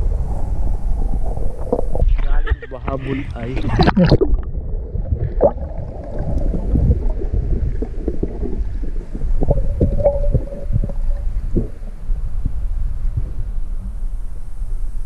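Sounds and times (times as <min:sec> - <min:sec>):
muffled underwater rumble: 0:00.0 - 0:15.0
underwater knocks and clicks: 0:03.6 - 0:11.8.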